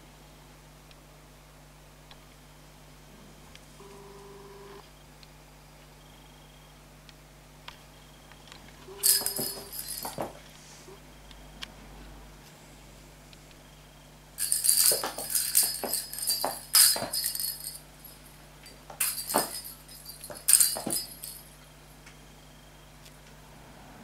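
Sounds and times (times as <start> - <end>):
bell ball jingling and rattling: 9.0 - 10.4, 14.4 - 21.6.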